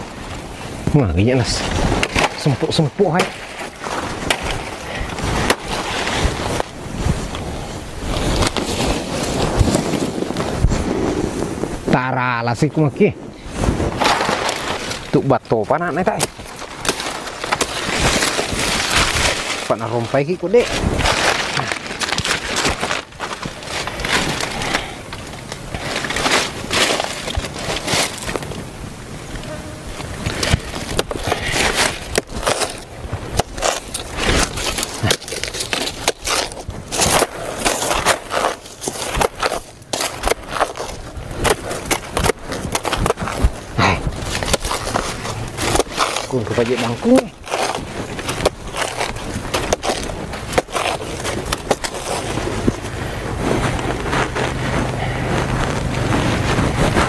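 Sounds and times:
leaves snapping: 0:00.0 - 0:12.8, 0:13.5 - 0:57.0
dry leaves crackling and rustling: 0:00.0 - 0:57.0
machete chopping stalks: 0:30.2 - 0:57.0
low engine hum: 0:52.3 - 0:57.0.

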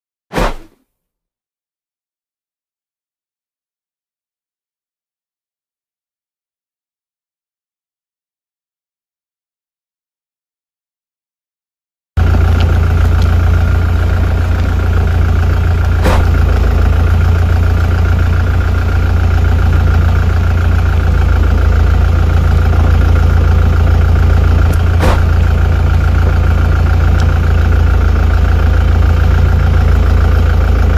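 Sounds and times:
engine idling: 0:12.2 - 0:30.9.

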